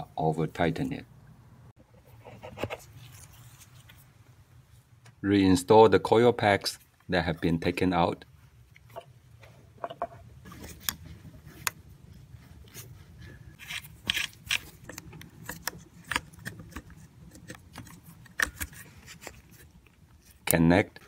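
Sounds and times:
plastic clicks and scrapes: 0:13.6 - 0:20.6.

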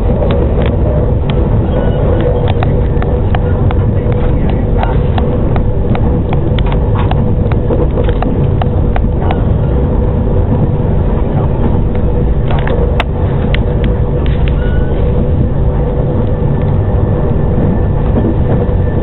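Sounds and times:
rhythmic clicks: 0:00.0 - 0:16.8
train rumble inside carriage: 0:00.0 - 0:19.0.

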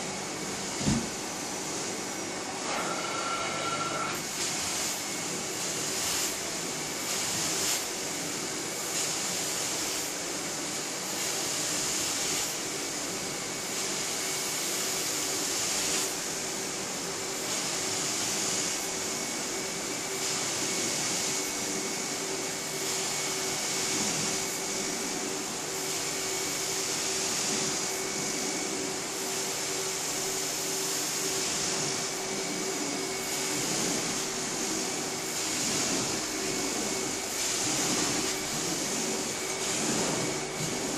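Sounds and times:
carpet extractor motor whine: 0:36.0 - 0:40.9.

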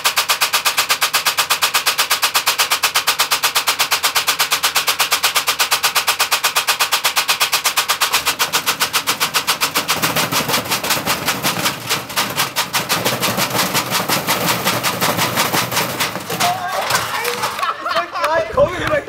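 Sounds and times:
washing machine knocking and rattling: 0:00.0 - 0:17.7.

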